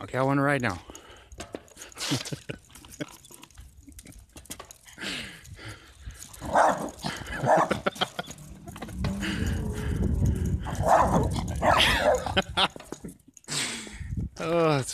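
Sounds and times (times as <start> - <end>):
short clicks and rattles: 0.6 - 13.5
dog barking: 6.4 - 7.9, 10.7 - 12.4.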